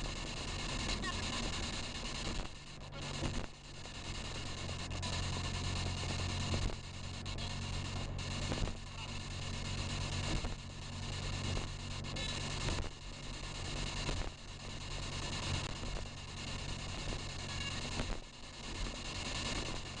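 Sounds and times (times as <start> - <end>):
radio static hiss: 0.0 - 20.0.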